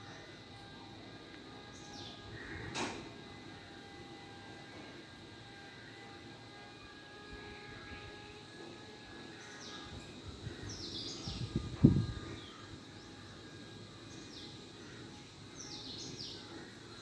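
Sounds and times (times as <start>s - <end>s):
birds chirping: 9.3s - 13.2s.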